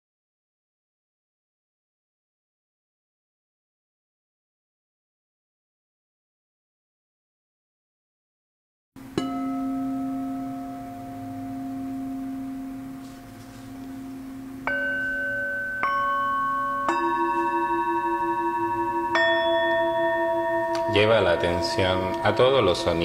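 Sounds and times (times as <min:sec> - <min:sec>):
singing bowls struck with mallet: 0:09.0 - 0:23.0.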